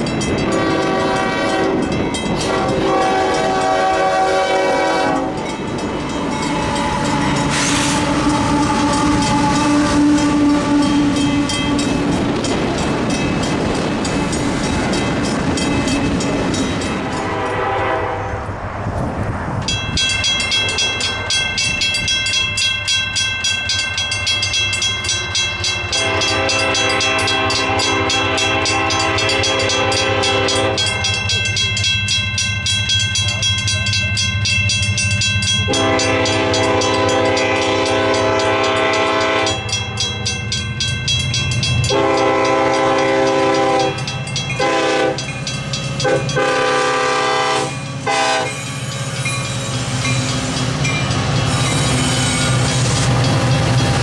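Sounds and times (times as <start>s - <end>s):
railroad crossing bell ringing: 0.0s - 18.4s, 19.6s - 54.0s
train rumble: 0.0s - 54.0s
locomotive air horn blasts: 0.5s - 5.5s, 6.6s - 12.0s, 17.1s - 18.4s, 25.9s - 31.2s, 35.7s - 39.7s, 41.9s - 44.0s, 44.6s - 45.2s, 46.0s - 48.6s.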